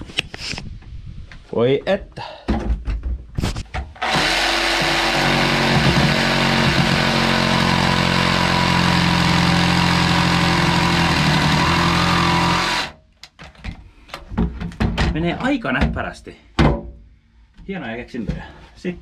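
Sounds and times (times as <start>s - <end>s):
reciprocating saw cutting: 4.0s - 13.0s.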